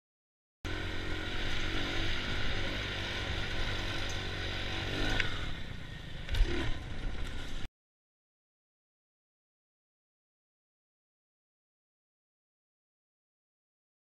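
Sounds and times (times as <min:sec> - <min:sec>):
dirt bike engine running: 0:00.7 - 0:07.7.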